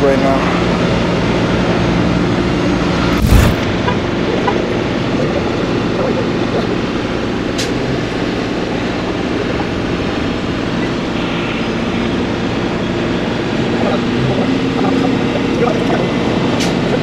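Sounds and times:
diesel engine running: 0:00.0 - 0:17.0
loud thump: 0:03.1 - 0:04.0.

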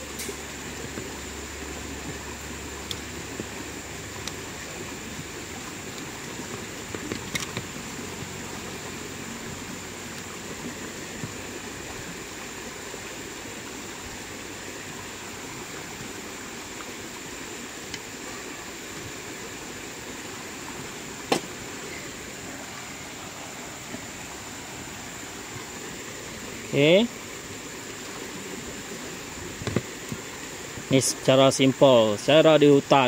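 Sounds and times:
stream rushing: 0:00.0 - 0:33.0
thin high tone: 0:21.7 - 0:23.0.

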